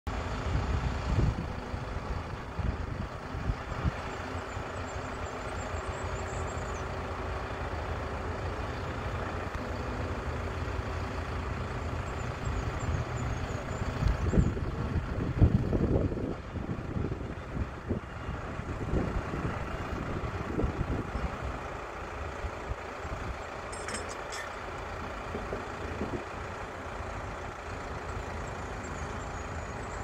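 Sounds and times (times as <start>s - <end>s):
crane diesel engine running: 0.1s - 30.0s
wind buffeting microphone: 0.4s - 4.2s, 12.6s - 21.6s, 25.3s - 26.4s.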